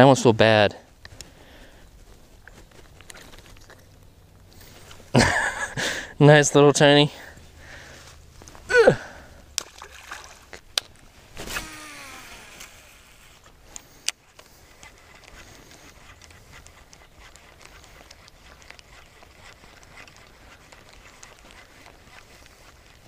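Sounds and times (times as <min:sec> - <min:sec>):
splash on pond surface: 0:09.6 - 0:10.6
fishing reel ticking: 0:11.6 - 0:22.7.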